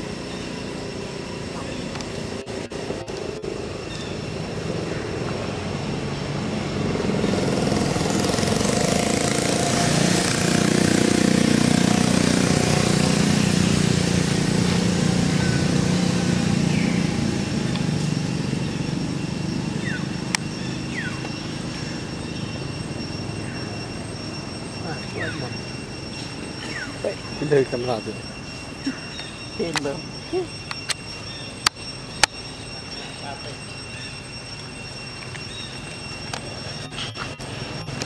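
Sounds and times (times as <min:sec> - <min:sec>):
vehicle engine passing: 0:00.0 - 0:28.3.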